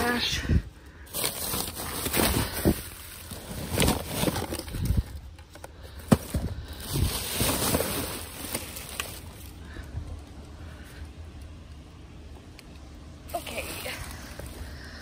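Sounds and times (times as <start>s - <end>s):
plastic trash bags rustling: 0.0s - 9.9s, 13.3s - 15.0s
cardboard shifting: 1.1s - 5.0s, 6.0s - 9.5s.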